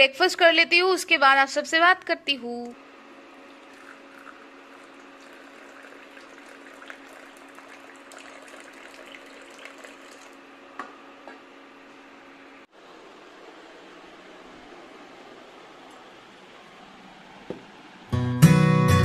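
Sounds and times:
water pouring into a mug: 3.4s - 10.4s.

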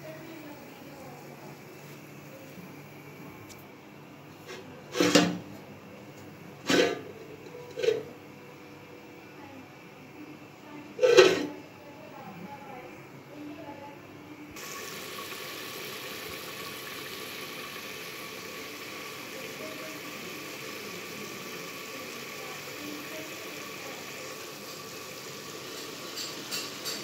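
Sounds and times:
pot hissing on stove: 14.6s - 27.0s.

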